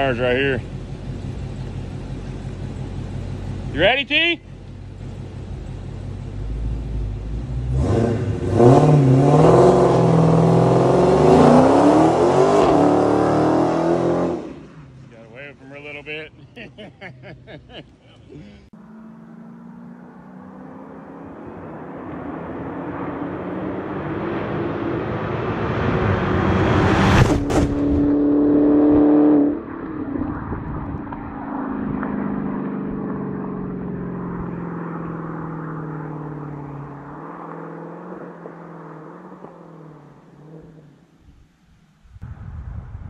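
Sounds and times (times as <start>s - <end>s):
car engine accelerating past: 6.4s - 14.9s, 18.8s - 41.0s.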